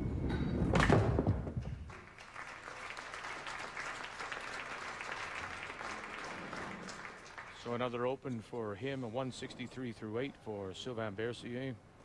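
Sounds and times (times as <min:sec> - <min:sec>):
ball crashing into pins: 0:00.3 - 0:01.8
crowd applauding: 0:01.9 - 0:07.7.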